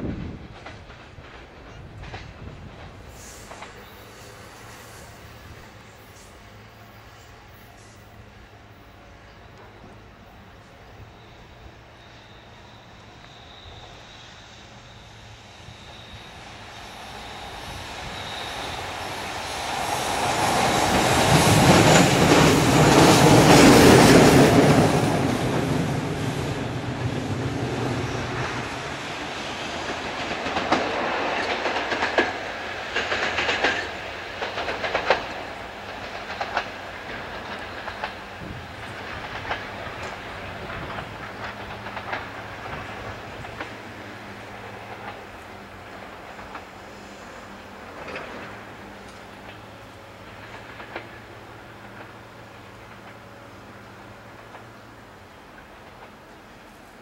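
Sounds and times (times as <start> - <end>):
locomotive rail noise: 0.0 - 57.0
wheels clanking over rail joints: 47.9 - 56.4.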